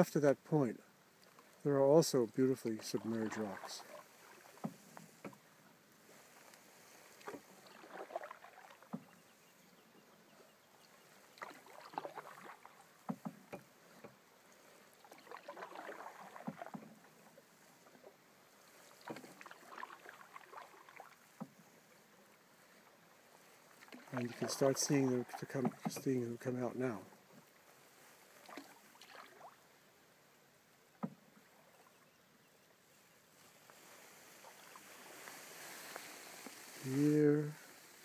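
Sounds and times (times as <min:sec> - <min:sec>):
paddle swishing in water: 0:01.2 - 0:38.0
light knocks against canoe: 0:03.6 - 0:05.5, 0:06.4 - 0:09.4, 0:11.0 - 0:14.2, 0:15.1 - 0:17.3, 0:25.5 - 0:26.2, 0:30.9 - 0:31.4.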